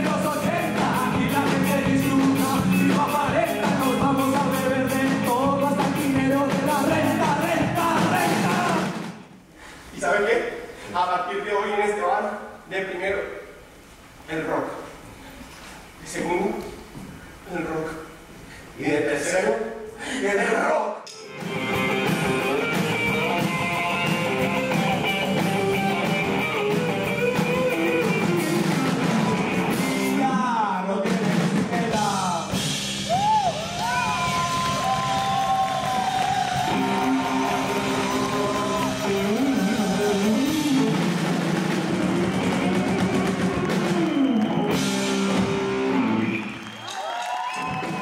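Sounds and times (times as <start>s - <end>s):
men singing: 0.0s - 9.0s
rock song: 0.0s - 9.3s, 21.2s - 46.7s.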